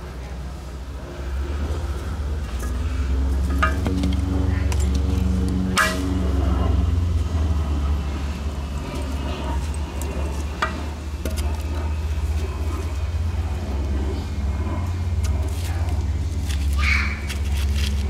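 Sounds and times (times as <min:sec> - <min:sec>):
low hum: 0:00.0 - 0:18.0
firewood sticks knocking: 0:02.6 - 0:06.2, 0:10.5 - 0:11.7.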